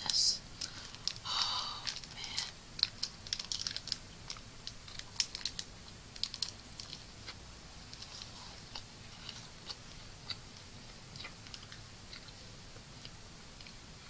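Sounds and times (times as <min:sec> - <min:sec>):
plastic wrapper crinkling: 0:00.1 - 0:10.4.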